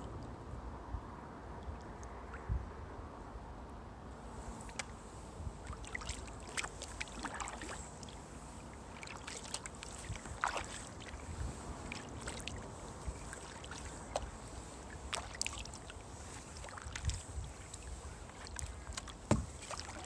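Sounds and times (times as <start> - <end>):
paddle splashing in water: 4.3 - 20.0.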